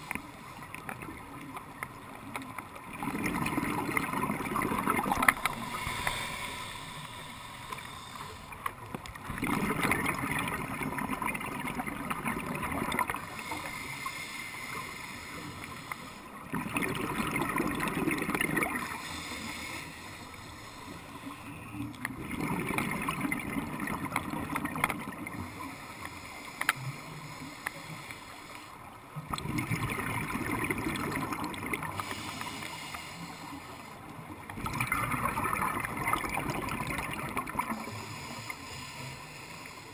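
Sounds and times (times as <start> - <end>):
rush of bubbles: 2.8 - 6.1, 9.2 - 13.4, 16.4 - 19.1, 22.0 - 25.5, 29.2 - 32.2, 34.5 - 38.0
diver breathing through regulator: 5.0 - 8.7, 13.2 - 16.5, 18.7 - 21.9, 25.4 - 28.8, 31.8 - 34.2, 37.7 - 39.9.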